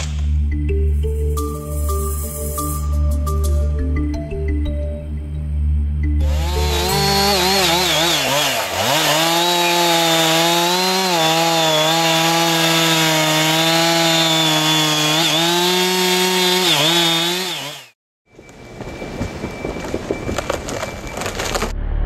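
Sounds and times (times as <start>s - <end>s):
chainsaw cutting wood: 6.2s - 18.0s.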